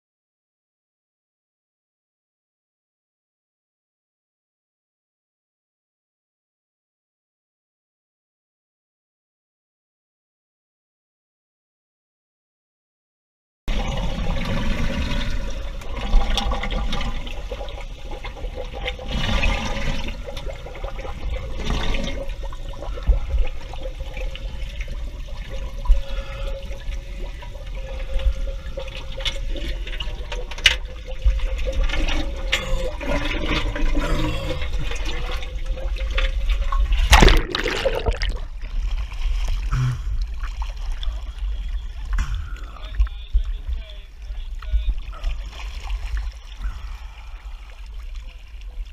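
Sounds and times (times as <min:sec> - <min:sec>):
water sloshing and bubbling: 0:13.7 - 0:48.9
loud splash: 0:37.0 - 0:38.5.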